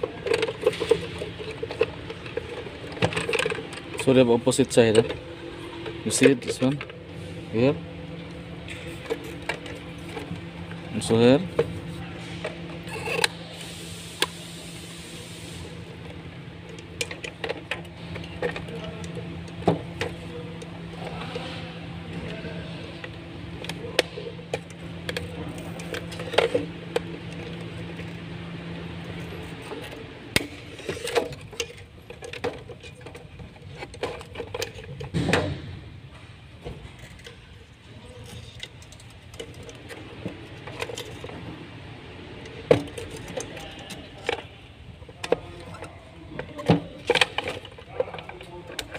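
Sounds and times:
plastic parts clicking: 0.0 - 5.2, 22.3 - 28.2, 29.7 - 35.2, 42.7 - 48.9
steady low hum: 0.0 - 48.9.

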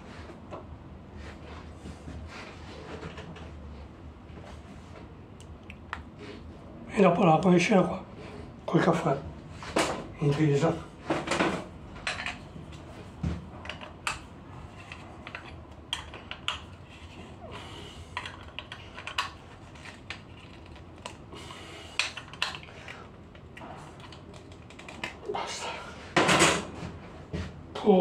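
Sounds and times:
small parts clicking and knocking: 18.1 - 21.2.

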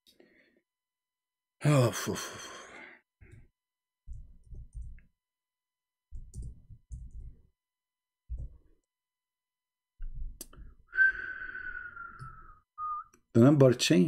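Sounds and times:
person sighing: 1.6 - 3.1, 10.9 - 12.6
keyboard typing: 4.1 - 5.1, 6.1 - 7.5.

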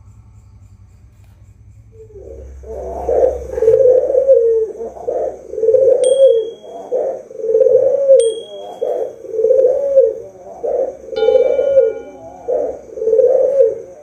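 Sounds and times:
dove cooing: 2.0 - 14.0
faint high bird chirps: 6.0 - 7.1, 8.2 - 9.2, 11.2 - 12.8.

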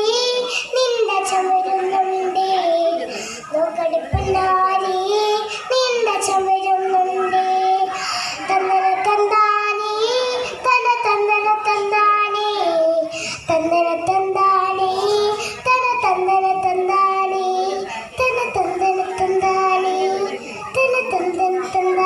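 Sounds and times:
girl singing: 0.0 - 22.0
breaths between phrases: 3.1 - 3.5, 7.9 - 8.5, 13.1 - 13.5.

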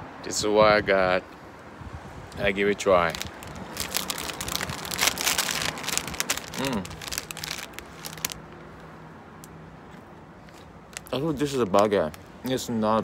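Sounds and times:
plastic wrapper crinkling: 3.0 - 8.4, 10.9 - 12.2
bread being bitten and chewed: 3.2 - 8.4
person humming: 6.5 - 7.0.

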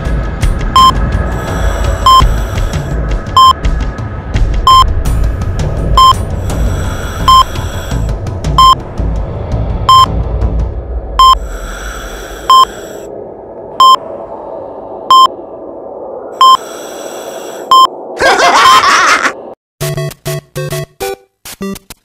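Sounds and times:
rising rushing sound effect: 0.0 - 18.2
low hum: 0.0 - 19.6
short electronic beep: 8.6 - 8.8.

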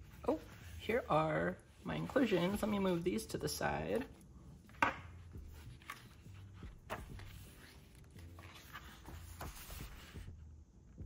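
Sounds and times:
paper rustling: 2.0 - 10.3.

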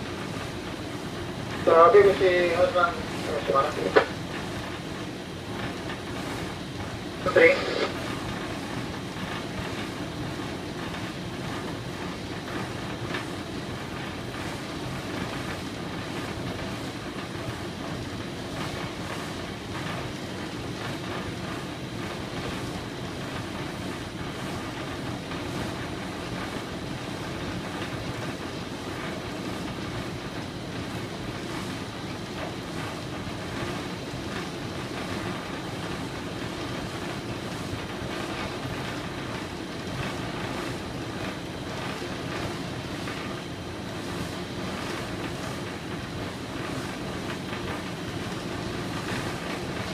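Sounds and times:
boat diesel engine drone: 0.0 - 8.9.

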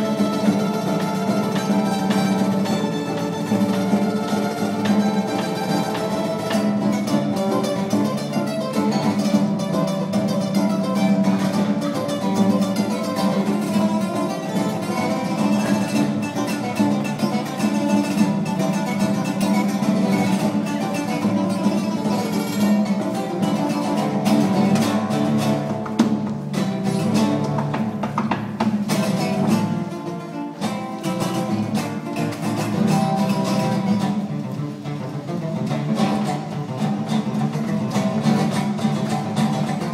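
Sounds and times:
acoustic guitar playing: 0.0 - 39.9.

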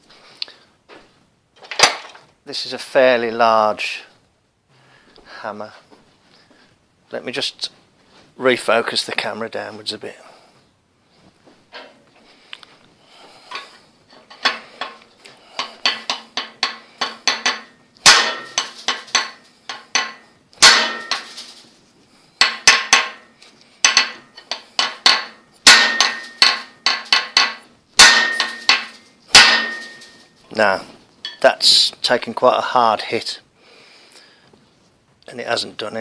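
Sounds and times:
hammer striking steel bar: 15.6 - 21.4, 22.4 - 30.3.

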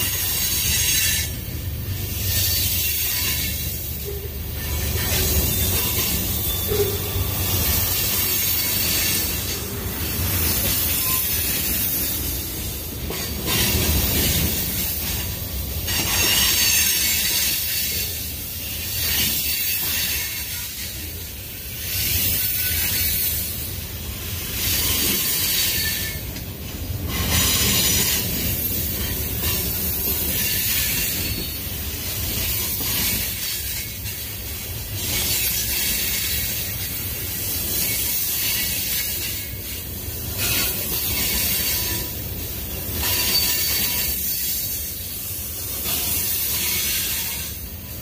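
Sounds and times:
freight train wheels rumbling on rail: 0.0 - 48.0.

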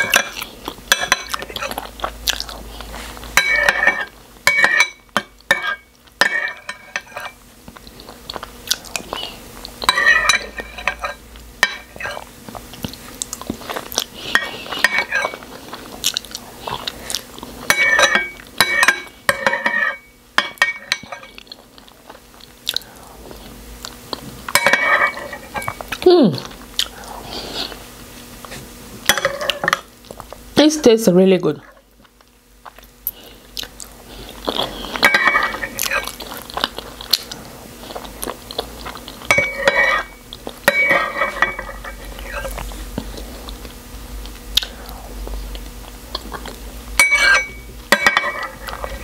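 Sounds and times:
chewing and eating: 0.0 - 3.4, 5.4 - 19.7, 20.9 - 30.4, 31.6 - 47.6
metal spoon scraping a bowl: 3.4 - 7.4, 9.8 - 12.2, 14.3 - 15.4, 17.7 - 21.4, 35.0 - 36.2, 39.3 - 42.6, 47.0 - 49.0.

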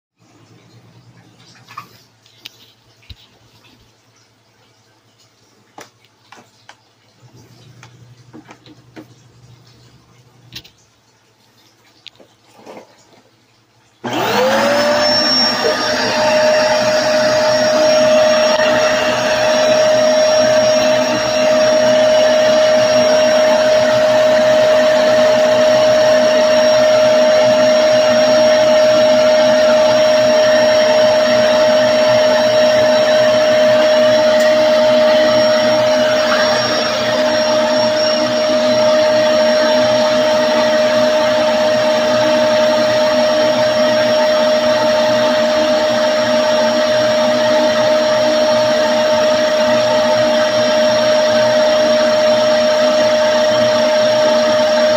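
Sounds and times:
vacuum cleaner motor whine: 14.0 - 54.9.

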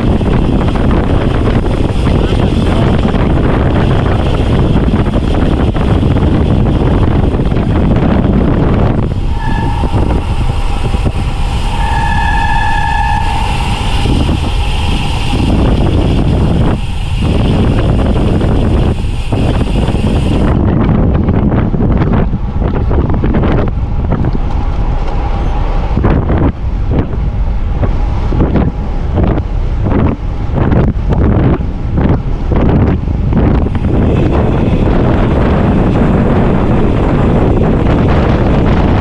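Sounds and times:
high steady squeal: 0.0 - 20.9
wind buffeting microphone: 0.0 - 39.0.

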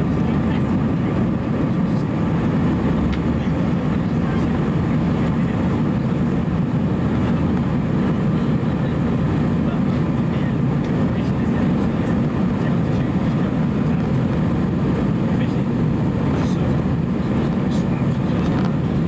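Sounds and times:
aircraft engine drone in cabin: 0.0 - 19.0.

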